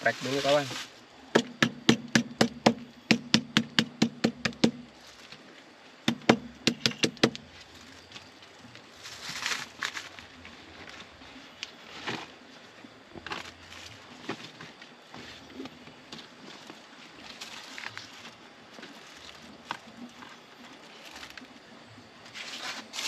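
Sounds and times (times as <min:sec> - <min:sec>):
soft rustle: 0:00.0 - 0:01.1, 0:04.9 - 0:05.9, 0:07.5 - 0:23.0
lemongrass being pounded flat: 0:00.0 - 0:05.0, 0:06.0 - 0:07.5.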